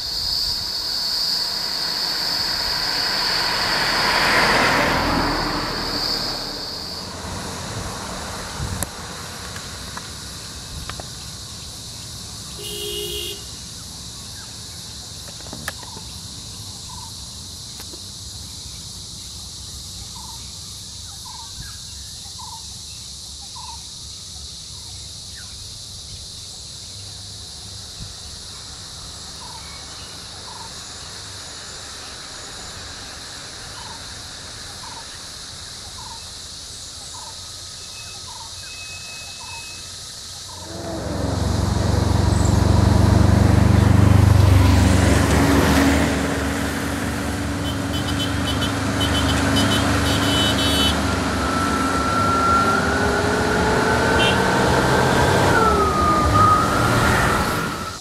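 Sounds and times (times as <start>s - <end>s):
insect buzz: 0.0s - 55.3s
multi-tone bird call: 37.2s - 40.8s
low rumble: 40.6s - 44.8s.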